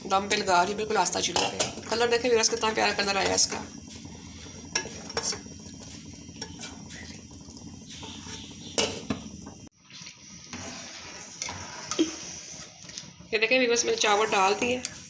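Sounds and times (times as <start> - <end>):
syrup bubbling with low hiss: 0.0 - 15.0
water boiling in a pot: 0.0 - 15.0.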